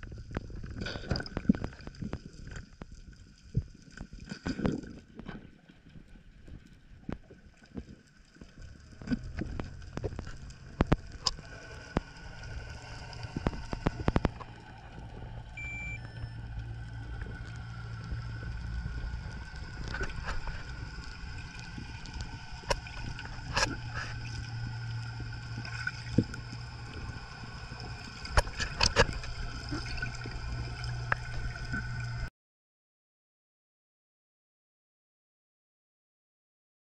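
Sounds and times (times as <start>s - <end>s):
low underwater hum: 0.0s - 32.3s
sharp clicks and crackles: 6.6s - 32.3s
short high beep: 15.6s - 16.4s.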